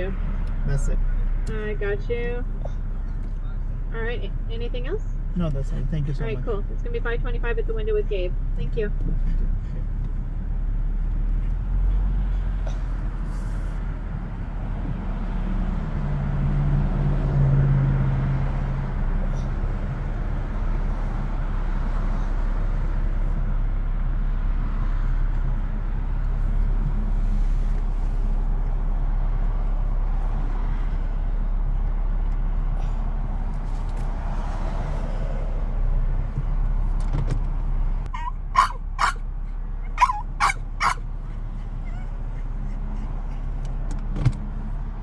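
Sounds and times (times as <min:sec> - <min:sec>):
car engine idling: 0:00.0 - 0:16.0, 0:35.6 - 0:45.0.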